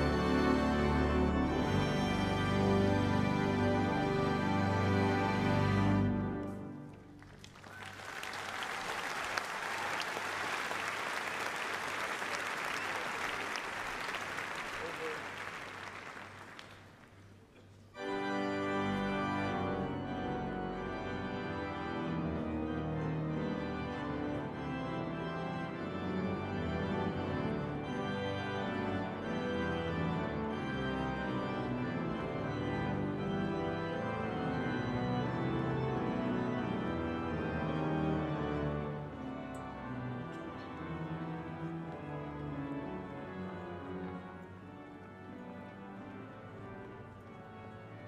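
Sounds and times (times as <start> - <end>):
pipe organ chords: 0.0 - 7.2, 17.9 - 48.0
faint applause: 6.9 - 17.4.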